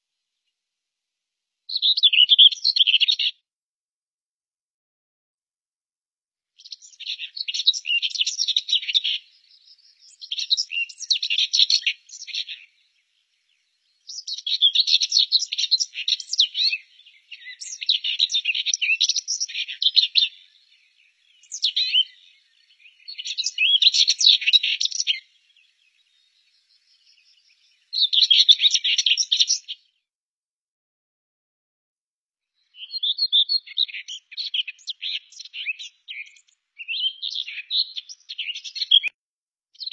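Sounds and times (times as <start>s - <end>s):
bird warbling song: 1.7s - 3.3s, 6.6s - 30.0s, 32.7s - 39.1s.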